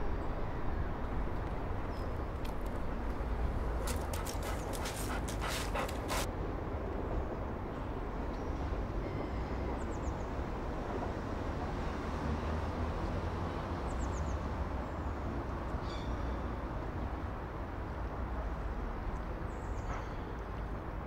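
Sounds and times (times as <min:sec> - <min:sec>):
vehicle engine rumble: 0:00.0 - 0:06.3.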